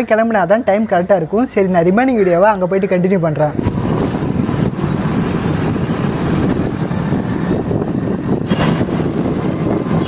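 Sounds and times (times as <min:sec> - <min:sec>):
wind buffeting microphone: 0:03.2 - 0:10.0
motorcycle engine running: 0:03.6 - 0:10.0.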